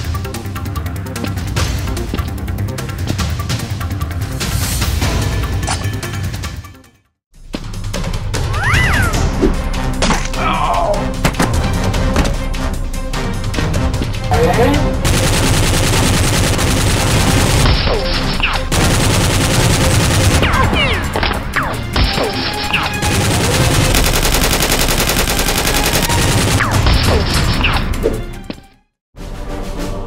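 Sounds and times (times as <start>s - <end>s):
background music: 0.0s - 30.0s
rapid gunfire: 15.0s - 27.5s.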